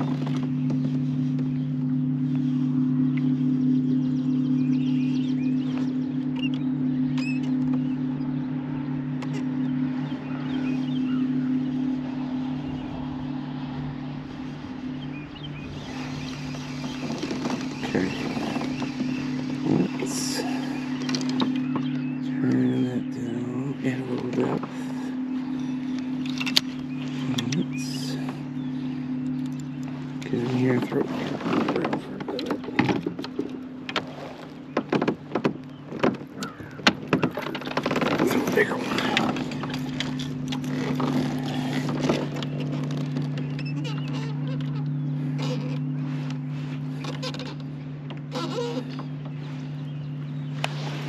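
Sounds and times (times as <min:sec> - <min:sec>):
low motor hum: 0:00.0 - 0:51.0
waves slapping kayak hull: 0:09.3 - 0:51.0
rustling: 0:10.6 - 0:22.2, 0:28.1 - 0:51.0
faint clicks: 0:15.9 - 0:22.6.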